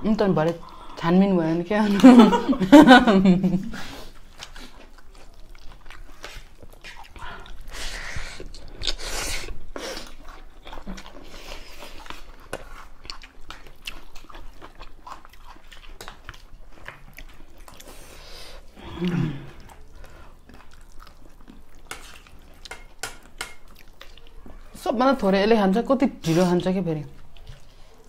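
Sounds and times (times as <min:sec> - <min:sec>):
chewing and biting food: 0:03.7 - 0:24.8, 0:26.4 - 0:28.0
cutlery clicking on plates: 0:21.9 - 0:23.6.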